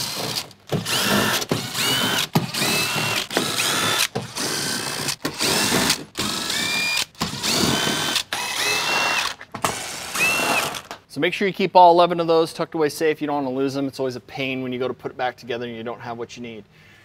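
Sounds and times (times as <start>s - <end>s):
impact gun motor whine: 0.0s - 10.9s.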